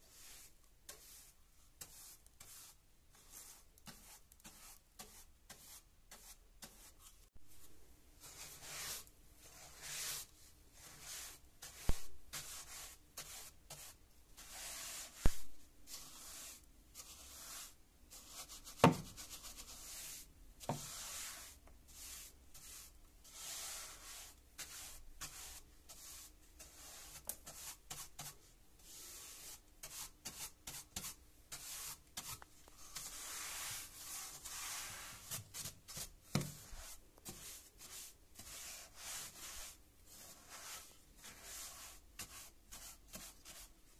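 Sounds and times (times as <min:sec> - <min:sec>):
brush sweeping wooden stair: 0:29.0 - 0:43.6.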